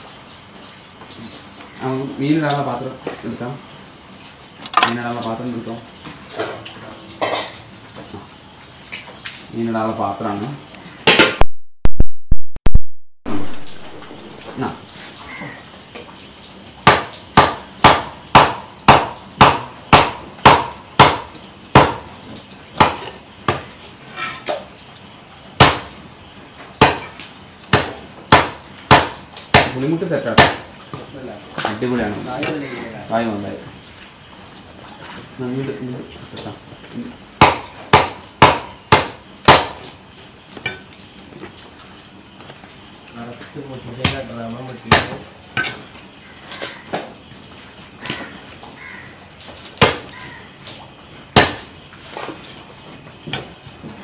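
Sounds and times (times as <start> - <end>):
cleaver chopping fish on wood: 16.8 - 22.1, 22.8 - 23.7, 25.6 - 25.9, 26.8 - 30.7, 37.4 - 39.9, 44.9 - 45.8, 49.8 - 50.3, 51.4 - 51.7.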